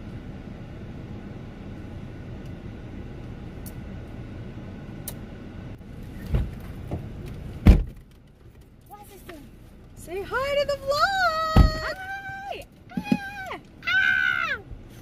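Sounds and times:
dull thump: 0:06.2 - 0:08.0, 0:11.5 - 0:12.0.

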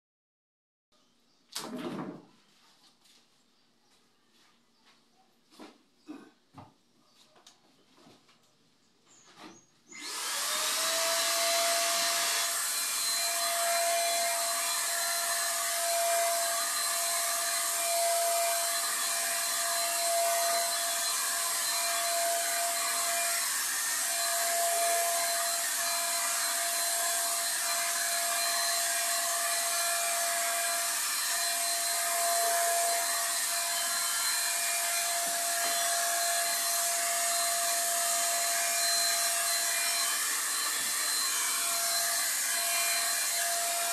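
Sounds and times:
paint sprayer motor whining: 0:09.9 - 0:43.9.

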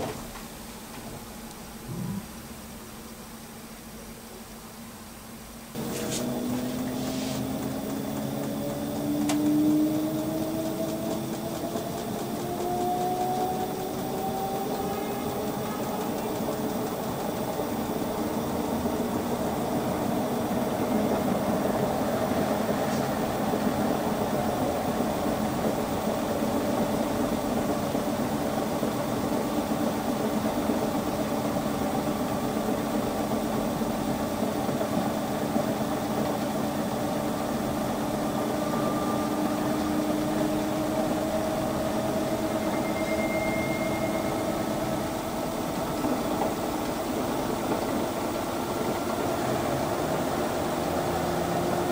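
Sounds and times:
high whine: 0:01.7 - 0:02.8, 0:37.7 - 0:47.3
washer-dryer humming: 0:05.6 - 0:51.9.

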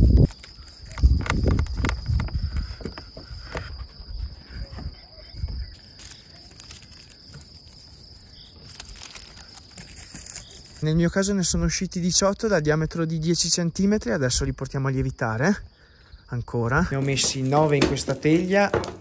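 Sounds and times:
high insect trill: 0:00.0 - 0:19.0
baking paper rustling: 0:05.8 - 0:10.8, 0:16.8 - 0:19.0.

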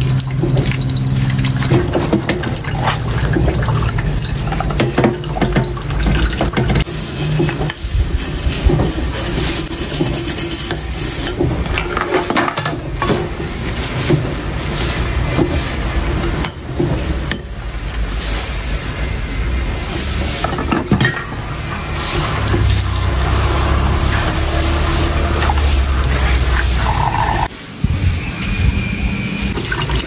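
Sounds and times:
dishes clinking in a sink: 0:00.0 - 0:17.7, 0:20.2 - 0:27.5
tap water running: 0:00.0 - 0:18.5, 0:19.9 - 0:27.5, 0:29.5 - 0:30.0.

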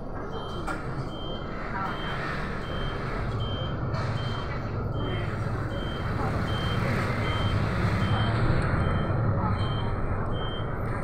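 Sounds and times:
bus engine droning: 0:00.0 - 0:11.0
road noise: 0:00.0 - 0:11.0.

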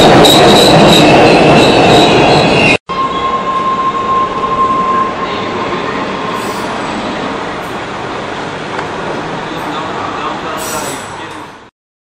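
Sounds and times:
high steady squeal: 0:00.0 - 0:07.8
subway train wheel noise: 0:00.0 - 0:11.7.

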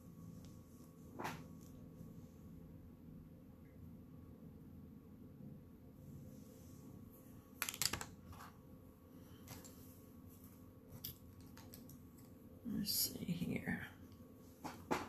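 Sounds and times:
makeup items clicking and rattling: 0:07.6 - 0:08.4, 0:11.0 - 0:12.3.

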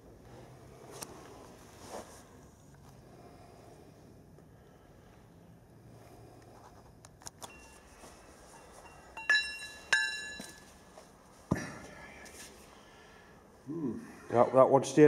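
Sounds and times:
ringing metallic clinks: 0:08.5 - 0:10.8.

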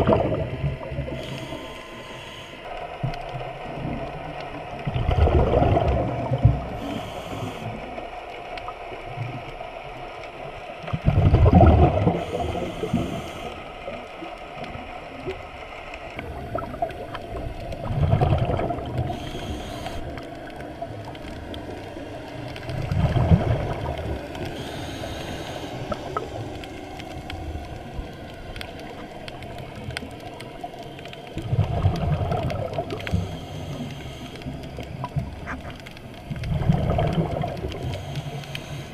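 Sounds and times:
exhaled bubbles rumbling underwater: 0:00.0 - 0:38.9
regulator inhalation hiss: 0:01.1 - 0:02.7, 0:06.7 - 0:08.0, 0:12.1 - 0:13.7, 0:19.0 - 0:20.3, 0:24.5 - 0:26.8, 0:33.1 - 0:34.8, 0:37.8 - 0:38.9.

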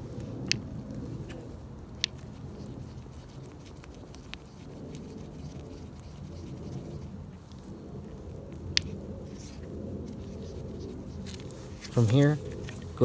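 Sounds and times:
sharp tick: 0:02.0 - 0:02.2
stick scraping epoxy in a cup: 0:02.0 - 0:07.2.

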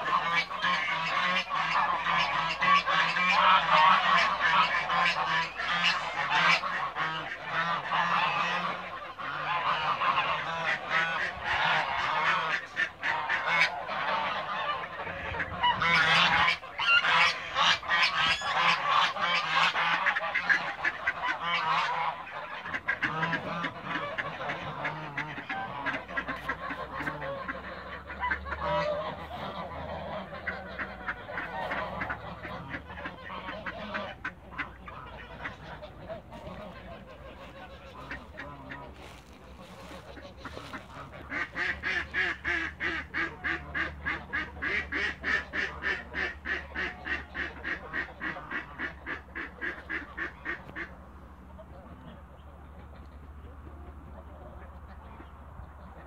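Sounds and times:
quick goose calls: 0:00.0 - 0:50.9
geese honking: 0:00.0 - 0:56.0.

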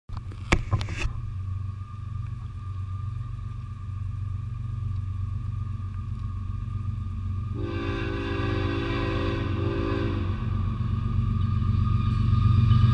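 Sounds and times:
diesel freight train rumbling: 0:00.1 - 0:12.9
locomotive air horn chord: 0:07.5 - 0:10.6.

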